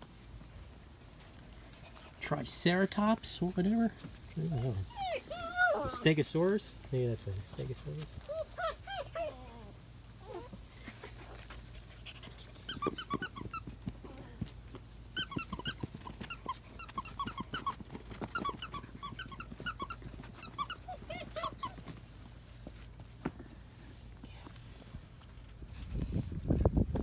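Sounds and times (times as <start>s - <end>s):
puppies squeaking and whining: 4.3s - 6.2s, 8.2s - 14.4s, 15.1s - 22.4s.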